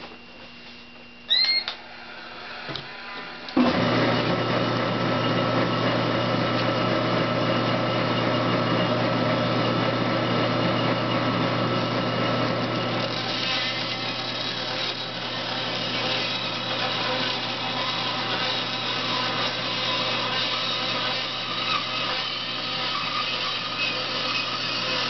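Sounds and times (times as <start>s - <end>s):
bandsaw motor hum: 1.3s - 25.0s
saw blade cutting wood: 12.6s - 25.0s.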